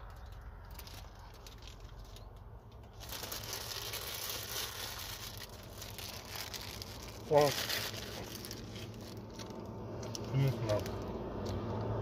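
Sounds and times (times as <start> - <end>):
plastic bag crinkling: 0.0 - 11.4
low steady hum: 0.0 - 12.0.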